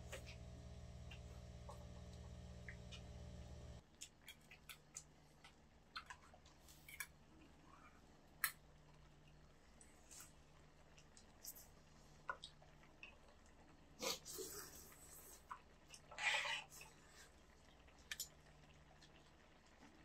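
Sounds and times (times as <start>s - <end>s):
steady low hum: 0.0s - 3.8s.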